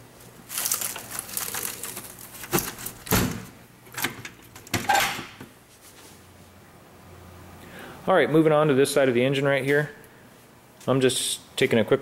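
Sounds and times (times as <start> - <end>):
rustling handling noise: 0.0 - 4.7.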